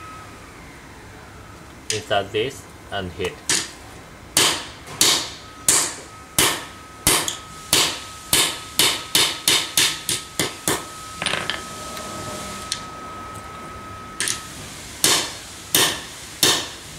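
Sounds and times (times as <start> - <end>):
faint high ringing: 0.0 - 16.3
hammer striking steel punch: 4.4 - 10.8, 15.0 - 16.8.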